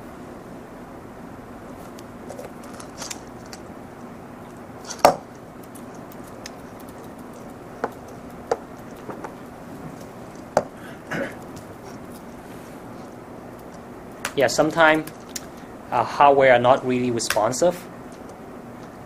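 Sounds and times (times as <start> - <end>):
room hum: 0.0 - 19.0
typing on laptop keyboard: 5.0 - 9.3.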